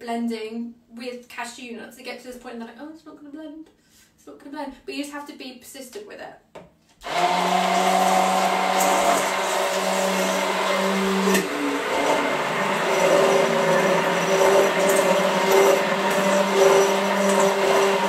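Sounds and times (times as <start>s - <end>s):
stick blender motor running: 7.0s - 18.0s.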